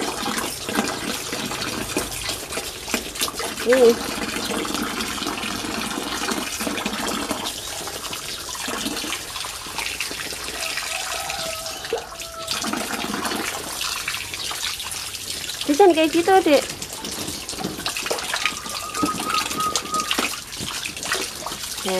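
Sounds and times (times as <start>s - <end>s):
hose water splashing into pool: 0.0s - 21.9s.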